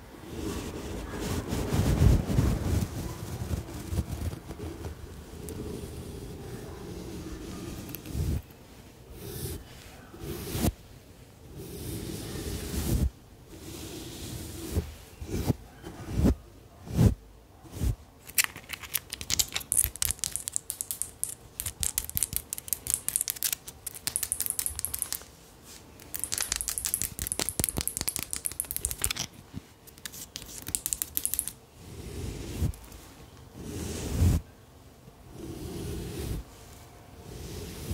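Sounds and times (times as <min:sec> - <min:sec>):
fast crisp scratching and crinkling: 0:01.4 - 0:05.1, 0:18.2 - 0:31.6.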